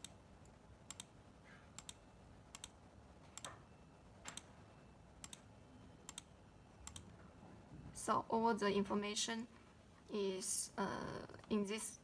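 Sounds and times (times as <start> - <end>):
computer mouse clicking: 0.0 - 1.2, 1.8 - 2.8, 4.3 - 4.5, 5.2 - 5.5, 6.1 - 7.1.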